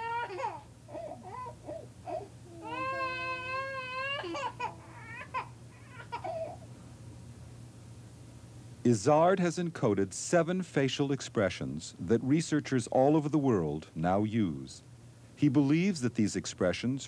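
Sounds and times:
toddler crying: 0:00.0 - 0:06.6.

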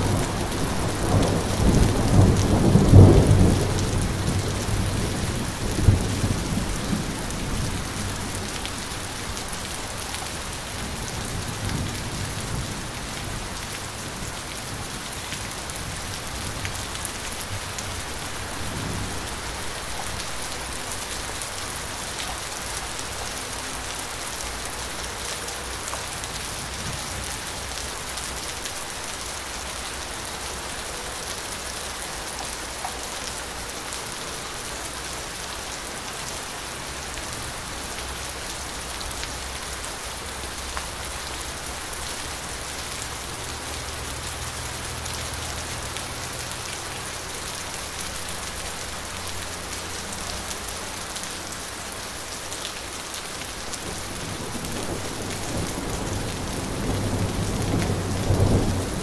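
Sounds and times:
low thunder rumbling: 0:00.0 - 0:09.1
light rain falling: 0:00.0 - 0:59.0.

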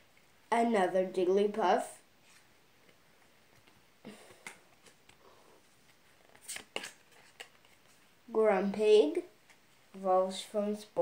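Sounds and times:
cards flicking and rustling: 0:02.3 - 0:05.2, 0:05.9 - 0:08.0.

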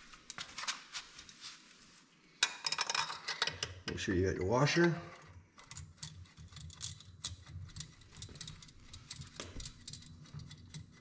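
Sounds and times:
metal clicks and clinks: 0:04.8 - 0:11.0.

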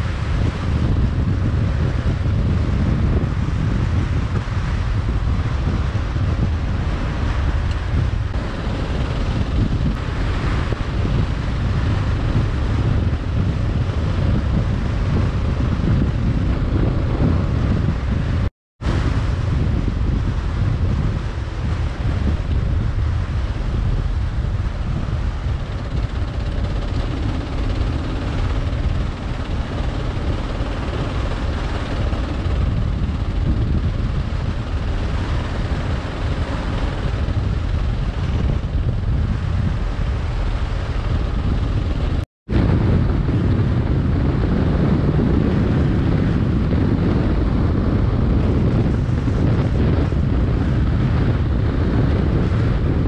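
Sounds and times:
road noise: 0:00.0 - 0:02.3, 0:03.1 - 0:27.3
wind rush on microphone: 0:00.0 - 0:53.0.

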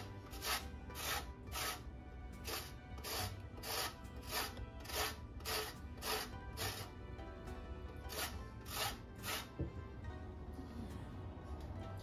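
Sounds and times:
lemon rasping on grater: 0:00.0 - 0:01.8, 0:02.4 - 0:06.9, 0:08.0 - 0:09.5
background music: 0:00.0 - 0:12.0.

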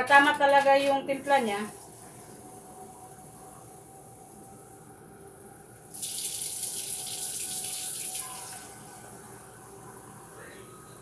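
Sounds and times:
water running into sink: 0:05.9 - 0:08.9.

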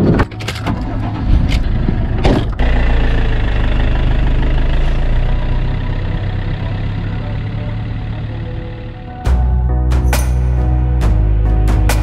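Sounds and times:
engine starting and idling: 0:00.0 - 0:09.2.

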